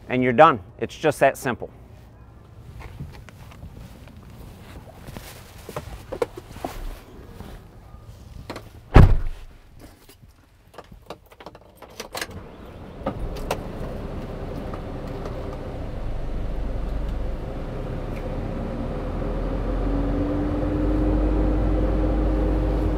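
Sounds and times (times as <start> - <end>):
diesel truck engine starting: 12.2 - 22.9.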